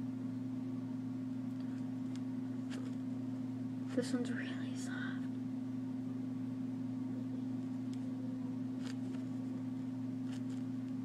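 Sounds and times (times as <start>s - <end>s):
low room hum: 0.0s - 11.0s
foam toy rustles and clicks: 1.7s - 3.0s, 8.8s - 9.4s, 10.2s - 11.0s.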